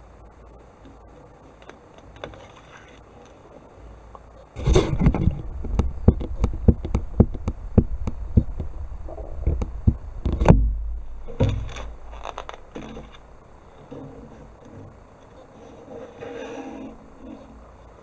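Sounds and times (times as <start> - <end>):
soft rustling: 0.9 - 18.0
heavy knock: 4.6 - 13.6.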